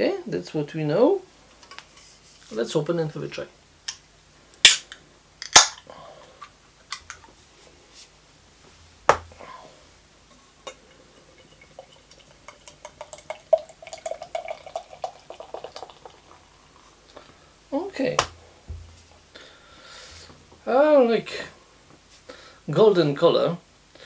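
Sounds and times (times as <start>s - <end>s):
beer can opening clicks: 4.6s - 5.8s
beer pouring into a glass: 10.7s - 16.7s.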